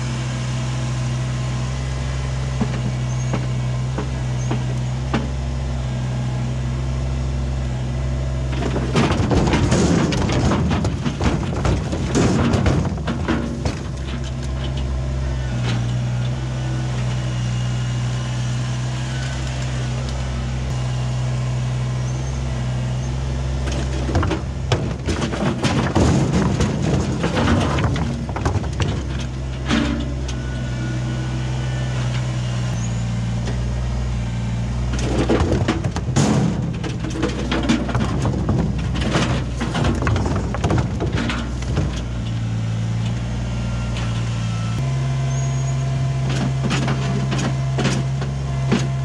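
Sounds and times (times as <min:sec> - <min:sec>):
diesel tractor engine running: 0:00.0 - 0:49.0
rocks clattering into trailer: 0:08.4 - 0:14.9, 0:23.6 - 0:30.4, 0:34.8 - 0:43.1.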